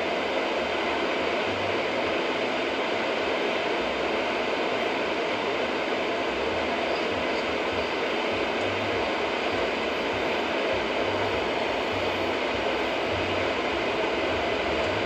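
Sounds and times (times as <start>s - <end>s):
tyres hissing on wet road: 0.0s - 15.0s
low rumble of engine and road: 6.2s - 15.0s.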